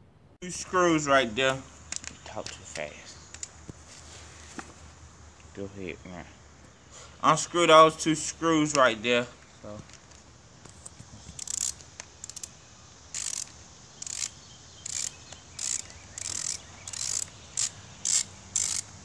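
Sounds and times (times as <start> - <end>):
socket ratchet clicking: 11.3 - 19.0.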